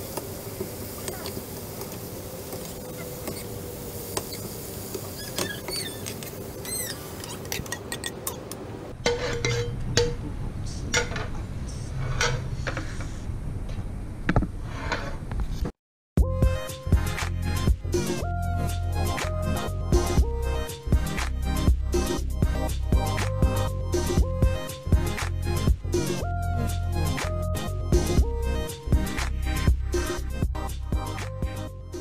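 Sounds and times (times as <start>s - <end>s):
high squeaks: 2.8s - 3.6s, 4.2s - 8.6s
metal tongs scraping in frying pan: 4.2s - 10.2s, 12.0s - 13.0s.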